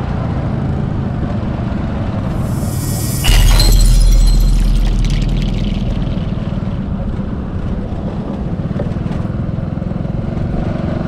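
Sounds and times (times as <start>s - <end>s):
loud low rumble: 2.3s - 8.0s.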